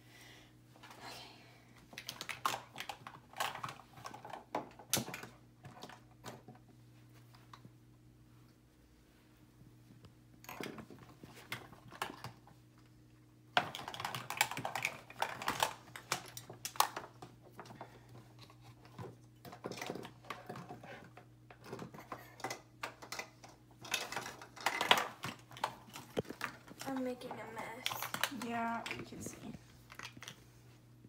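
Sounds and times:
faint steady hum: 0:00.0 - 0:31.0
plastic containers clattering: 0:13.5 - 0:29.3.

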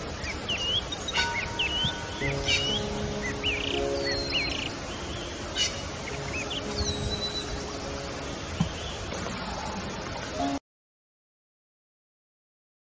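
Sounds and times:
birds chirping: 0:00.0 - 0:10.6
outdoor hiss: 0:00.0 - 0:10.6.

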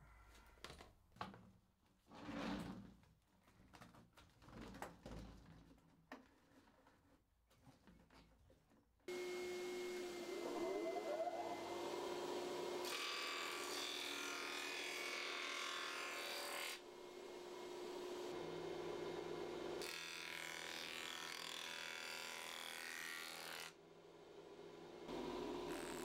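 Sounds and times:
planer motor humming: 0:09.1 - 0:12.9, 0:25.1 - 0:26.0
planer cutting board: 0:09.1 - 0:23.7, 0:25.1 - 0:26.0.

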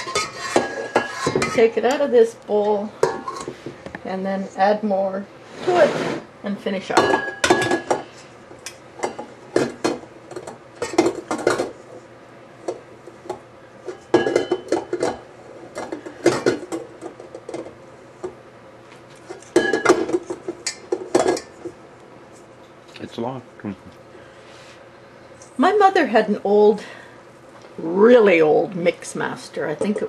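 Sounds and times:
metal bowl knocking and clinking: 0:13.9 - 0:15.2.

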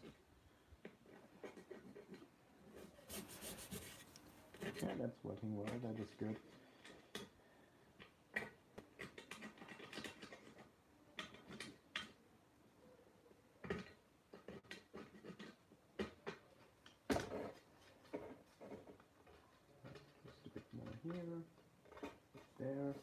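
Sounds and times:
plastic tool scraping steel helmet: 0:00.9 - 0:07.3, 0:13.7 - 0:23.0.

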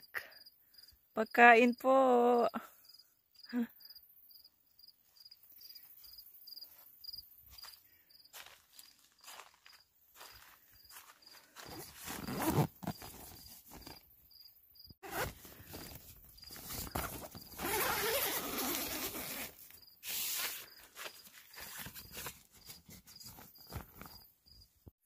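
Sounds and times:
tent fabric rustling: 0:08.4 - 0:14.2, 0:15.0 - 0:24.6
tent zipper: 0:11.6 - 0:14.1, 0:15.0 - 0:24.2.

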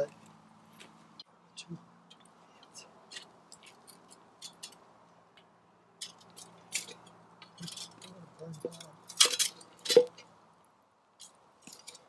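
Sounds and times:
stick scraping through coals: 0:06.0 - 0:10.3.

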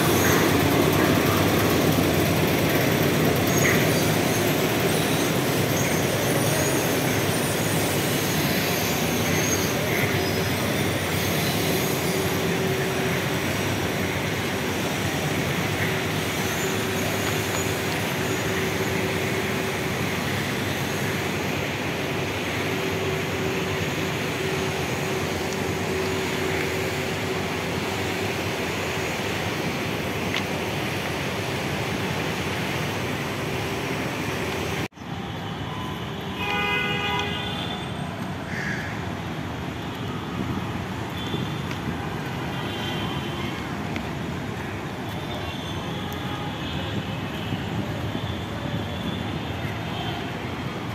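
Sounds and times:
urban traffic noise: 0:00.0 - 0:50.9
vehicle horn: 0:36.3 - 0:38.0.

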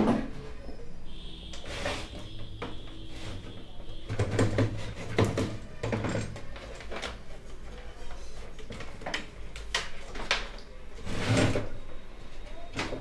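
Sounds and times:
plastic cabinet clicks and knocks: 0:04.1 - 0:07.1.

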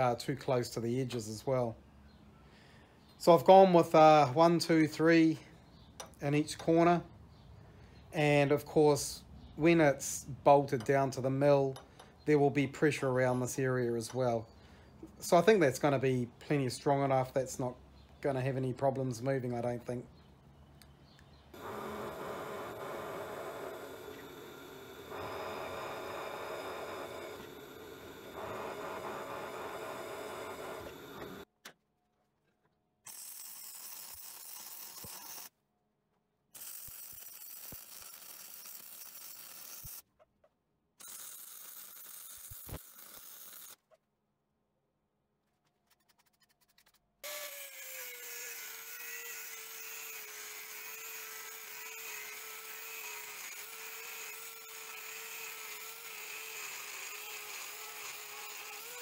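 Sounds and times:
angle grinder cutting steel: 0:21.5 - 0:31.5, 0:36.6 - 0:40.0, 0:47.2 - 0:59.0
drill press drilling steel: 0:21.6 - 0:31.4, 0:47.2 - 0:59.0
welding bursts: 0:21.6 - 0:31.5, 0:36.6 - 0:40.0, 0:41.0 - 0:43.8, 0:47.2 - 0:59.0.

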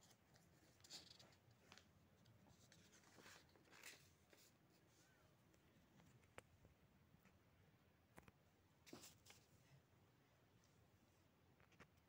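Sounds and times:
paper sheets rustling: 0:02.5 - 0:04.6.

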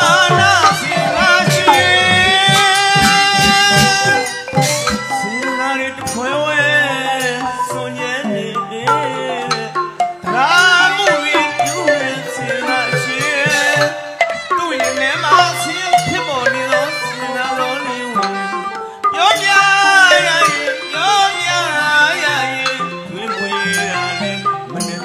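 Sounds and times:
tuned drums and gongs: 0:00.0 - 0:16.9
man singing wavering melody: 0:00.0 - 0:25.0.

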